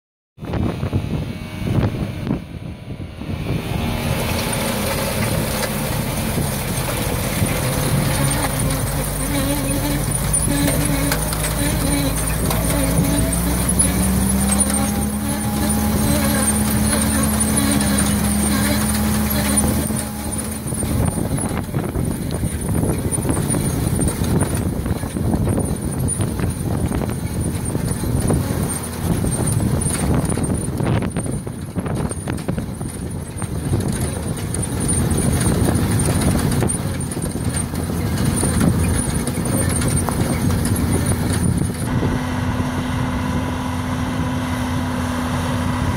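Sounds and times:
tractor engine running: 0.4s - 45.9s
seed drill rattling over ground: 3.6s - 42.0s.

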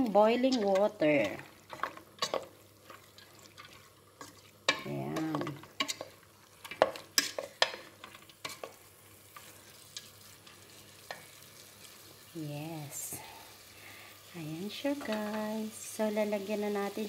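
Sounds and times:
grains sizzling: 0.0s - 17.0s
wooden spoon scraping a pot: 0.3s - 11.3s.

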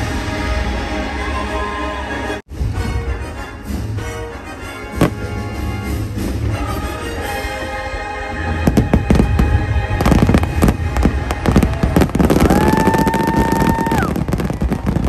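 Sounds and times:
soundtrack music: 0.0s - 12.5s
fireworks bursting and crackling: 4.9s - 7.3s, 8.5s - 15.0s.

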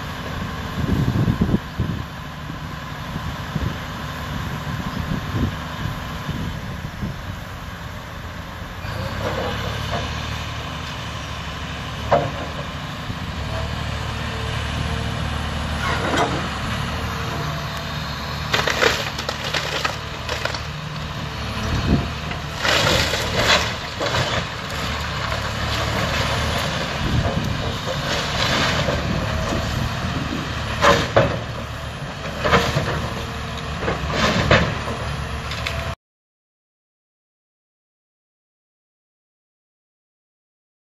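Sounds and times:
diesel engine running: 0.0s - 36.0s
timber crashing: 18.4s - 20.8s, 22.3s - 29.0s
wooden house splintering and cracking: 18.5s - 20.8s, 22.5s - 26.8s.

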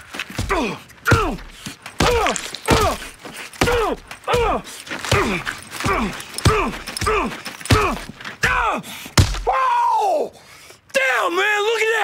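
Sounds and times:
punches thudding: 0.0s - 9.6s.

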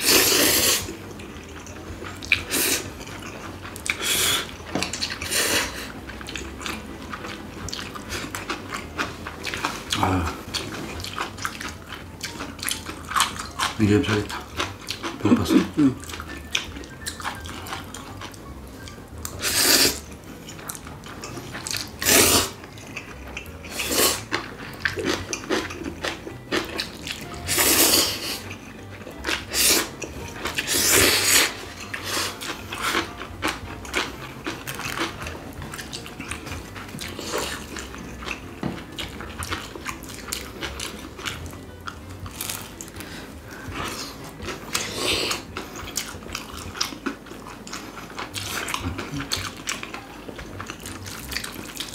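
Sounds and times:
noodle slurping: 0.0s - 1.0s, 19.4s - 20.1s, 22.0s - 22.6s, 27.4s - 28.5s, 29.4s - 30.0s
chewing: 0.0s - 51.9s.

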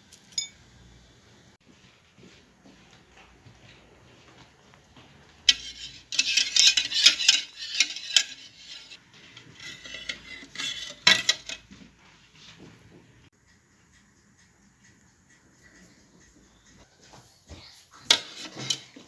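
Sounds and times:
wire whisk clinking on a plate: 0.3s - 0.6s.

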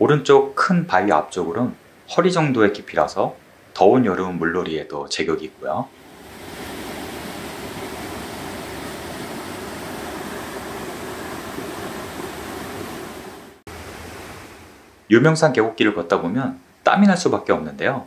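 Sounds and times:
stream rushing over rocks: 6.0s - 14.9s.

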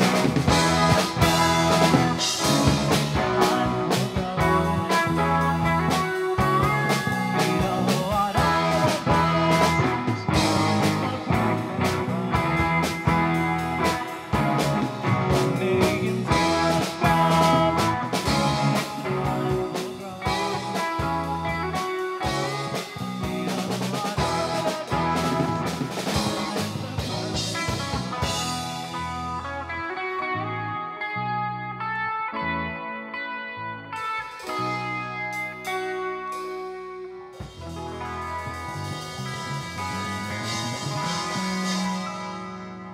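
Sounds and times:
live rock band playing: 0.0s - 42.9s.

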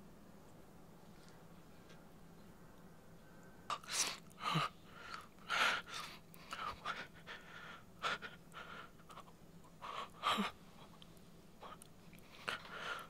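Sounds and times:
faint steady hum: 0.0s - 13.0s
man breathing hard: 3.9s - 10.6s, 12.4s - 13.0s.

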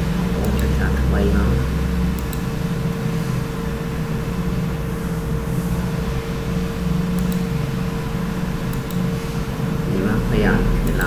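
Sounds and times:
mechanical hum: 0.0s - 11.0s
faint mouse clicks: 7.2s - 7.5s, 8.7s - 9.1s.

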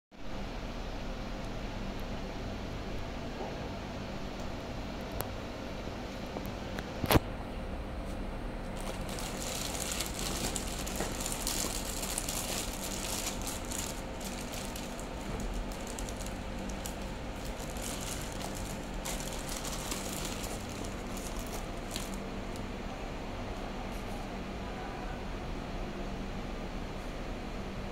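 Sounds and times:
plastic wrapping crinkling: 8.7s - 22.7s.

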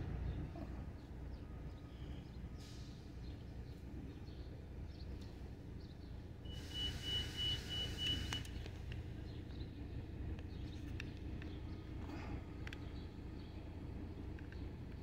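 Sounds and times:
hiss: 6.5s - 8.4s.

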